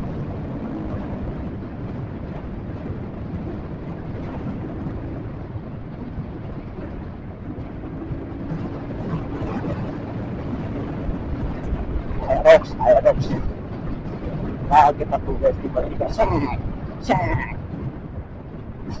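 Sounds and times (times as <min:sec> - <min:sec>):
motorcycle engine running: 0:00.0 - 0:03.6
wind rush on microphone: 0:00.0 - 0:19.0.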